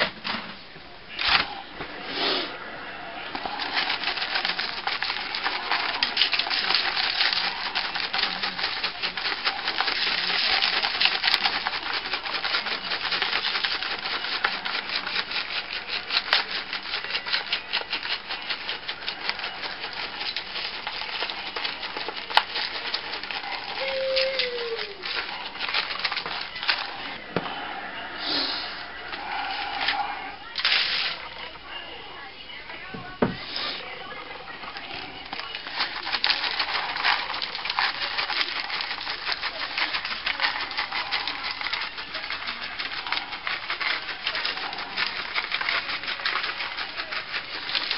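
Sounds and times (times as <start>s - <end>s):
spice shaker rattling: 3.4s - 27.0s, 34.8s - 47.9s.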